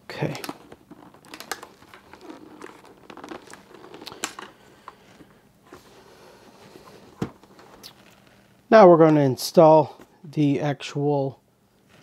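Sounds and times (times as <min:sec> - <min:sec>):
fabric liner rustling: 0:00.4 - 0:08.7.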